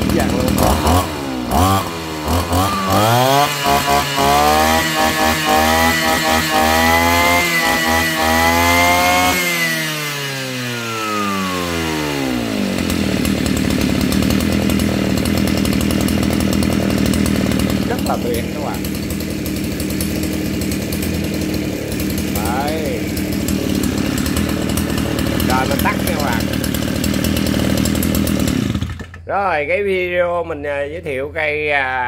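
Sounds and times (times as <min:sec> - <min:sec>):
brush cutter engine revving: 0:00.0 - 0:29.4.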